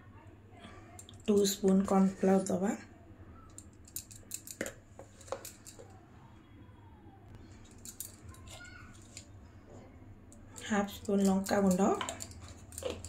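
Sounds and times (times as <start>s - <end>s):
spoon and container clicking: 10.3s - 13.0s.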